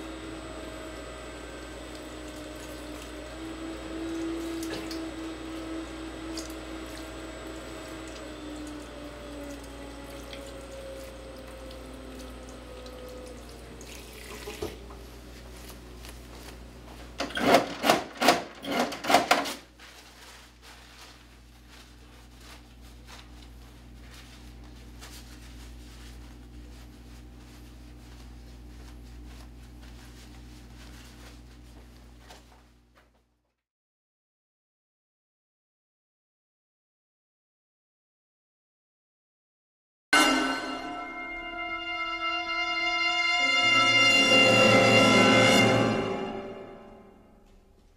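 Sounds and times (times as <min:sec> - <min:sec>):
paper towels rustling: 0:00.0 - 0:17.2, 0:19.4 - 0:33.3
tap running into washbasin: 0:07.9 - 0:15.0
paper towel dispenser clacking: 0:17.2 - 0:19.8.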